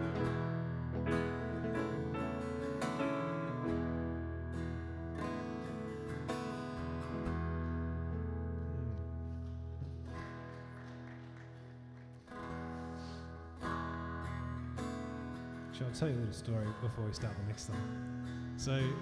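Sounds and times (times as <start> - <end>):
sustained keyboard chords: 0.0 - 10.9
strummed acoustic guitar: 0.0 - 19.0.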